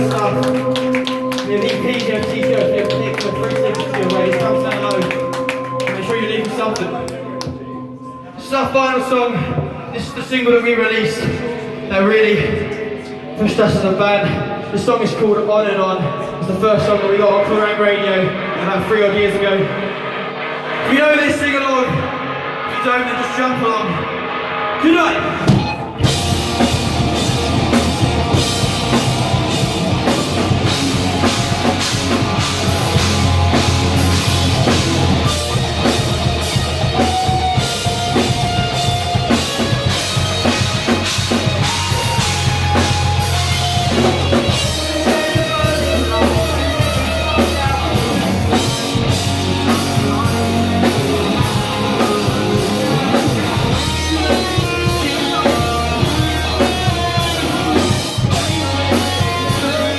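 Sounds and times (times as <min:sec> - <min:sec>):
drum kit: 0:00.0 - 0:07.6, 0:24.0 - 0:59.9
bass guitar: 0:00.0 - 0:08.3, 0:23.6 - 0:59.9
electric guitars: 0:00.0 - 0:08.5, 0:09.1 - 0:59.9.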